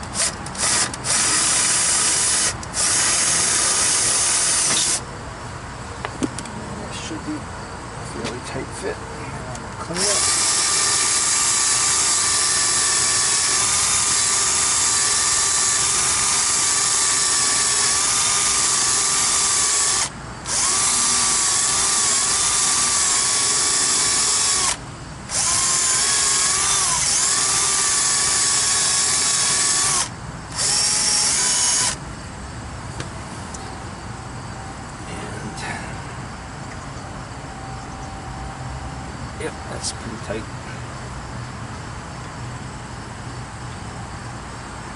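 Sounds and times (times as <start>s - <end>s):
cordless drill running: 0.0s - 5.0s, 9.9s - 32.0s.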